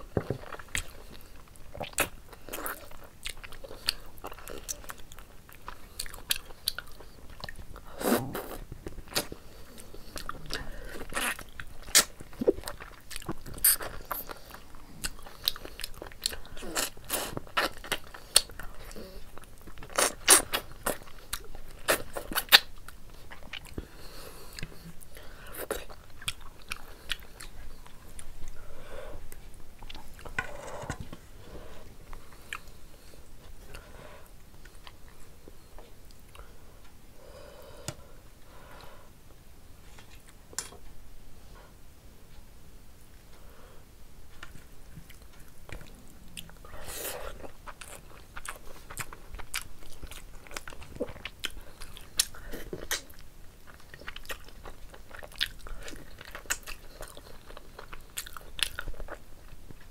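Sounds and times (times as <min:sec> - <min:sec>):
person chewing with mouth clicks: 0:00.1 - 0:23.9, 0:24.5 - 0:28.6, 0:32.0 - 0:36.9, 0:44.4 - 0:59.9.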